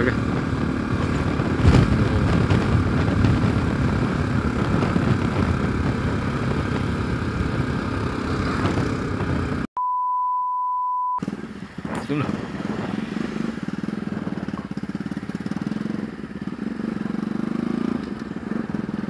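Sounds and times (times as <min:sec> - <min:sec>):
motorcycle engine running: 0:00.0 - 0:09.7, 0:11.2 - 0:19.0
road and wind noise: 0:00.0 - 0:09.7, 0:11.2 - 0:19.0
steady beep tone: 0:09.8 - 0:11.2.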